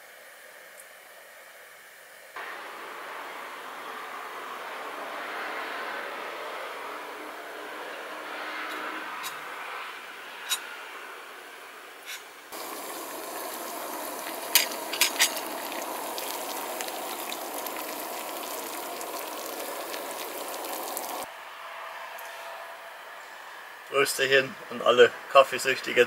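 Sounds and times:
gas stove burner hissing: 2.4s - 7.6s, 12.0s - 21.3s
water simmering: 2.4s - 8.2s, 12.4s - 21.3s
metal lid clinking: 14.5s - 15.5s.

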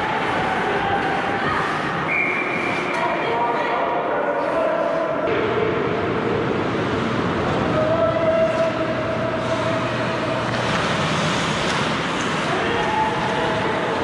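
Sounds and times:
skates scraping ice: 9.4s - 14.0s.

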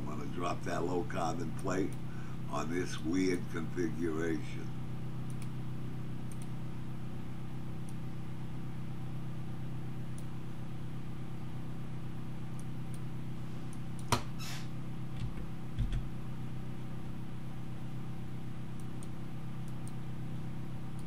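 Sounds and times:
room tone hum: 0.0s - 21.0s
computer mouse clicks: 5.3s - 5.6s, 6.2s - 6.6s, 18.7s - 20.0s.

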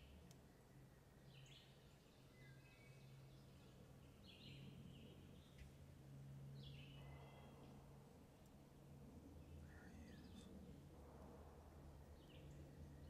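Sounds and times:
songbird singing: 0.0s - 5.7s, 6.4s - 7.8s, 9.4s - 10.8s, 12.0s - 13.0s
low steady hum: 0.0s - 13.0s.

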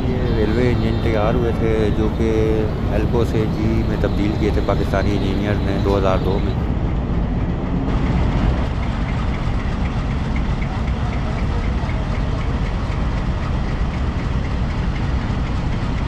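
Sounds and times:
faint even ticking: 0.0s - 6.7s
diesel locomotive engine idling: 0.0s - 16.0s.

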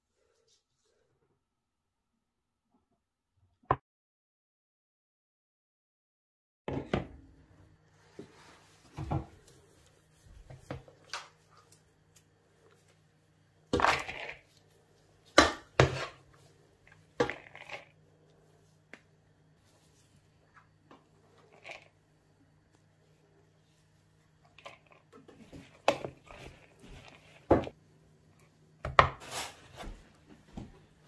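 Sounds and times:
jug knocking and scraping bowls: 13.7s - 14.5s, 15.4s - 18.0s, 24.5s - 27.8s.

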